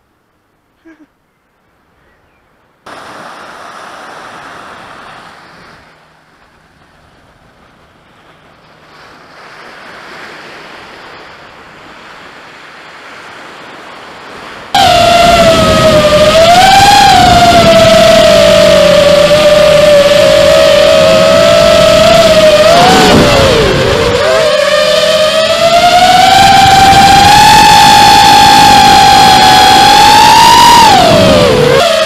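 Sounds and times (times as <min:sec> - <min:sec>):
surf washing onto beach: 0:02.9 - 0:26.0
wind noise: 0:02.9 - 0:32.0
wavering siren-like wail: 0:14.7 - 0:32.0.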